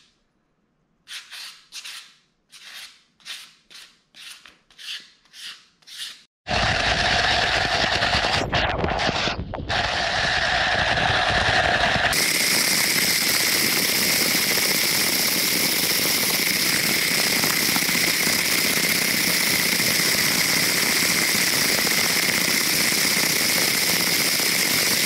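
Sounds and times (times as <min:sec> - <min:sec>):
tumbler whirring rattle: 0:06.5 - 0:25.0.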